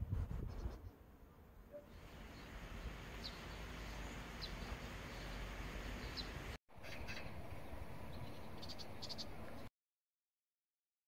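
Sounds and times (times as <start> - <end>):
bird chirps: 3.2 - 9.7.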